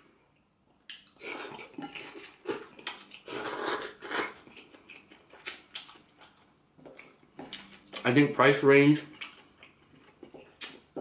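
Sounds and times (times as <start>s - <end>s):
chewing: 0.8s - 8.1s, 9.0s - 11.0s
person slurping noodles: 1.2s - 4.4s.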